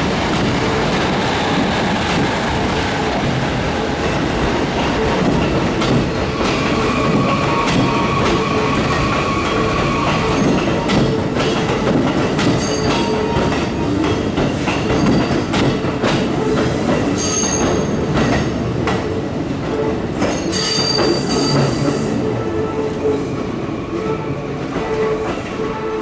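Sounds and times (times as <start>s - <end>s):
train wheels clicking over rail joints: 4.0s - 22.1s.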